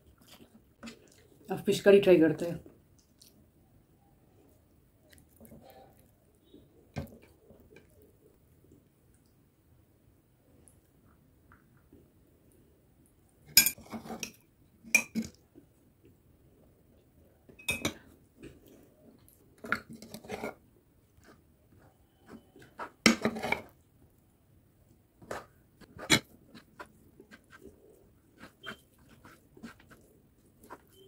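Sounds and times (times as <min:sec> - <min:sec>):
cutlery clinking against dishes: 0:13.6 - 0:14.3.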